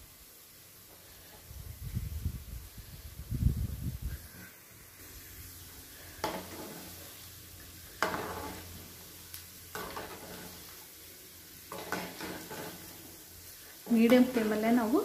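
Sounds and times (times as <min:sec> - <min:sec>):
dough balls sizzling in oil: 0:00.0 - 0:15.0
spoon scraping through oil: 0:05.1 - 0:09.0, 0:09.7 - 0:11.0, 0:11.6 - 0:14.6.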